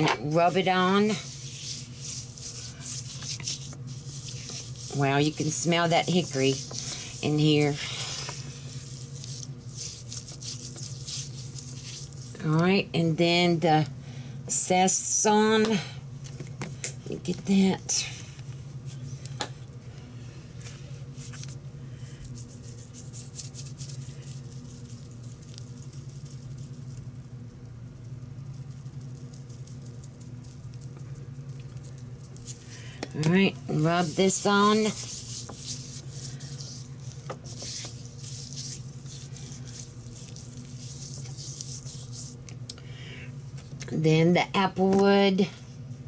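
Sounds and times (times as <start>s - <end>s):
low electrical hum: 0.0s - 46.0s
hands rubbing meat: 0.2s - 12.4s, 20.6s - 27.1s, 28.4s - 42.7s
spice shaker rattling: 1.0s - 12.4s, 22.3s - 27.2s, 27.9s - 32.9s, 33.8s - 42.5s.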